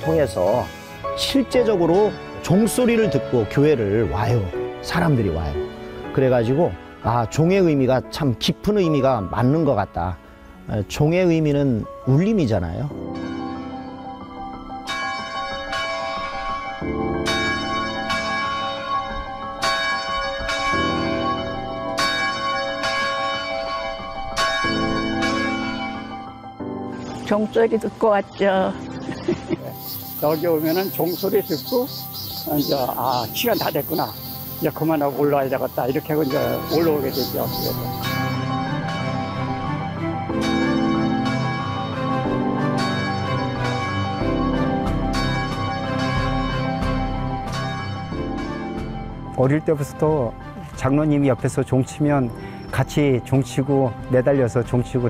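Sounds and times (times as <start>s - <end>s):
music: 0.0s - 55.0s
church bell ringing: 13.1s - 26.7s, 29.7s - 49.3s.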